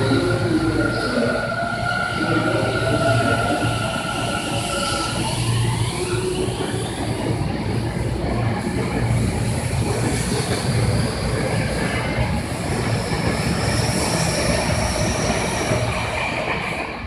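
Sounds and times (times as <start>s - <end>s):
electric train wheels rumbling: 0.0s - 17.0s.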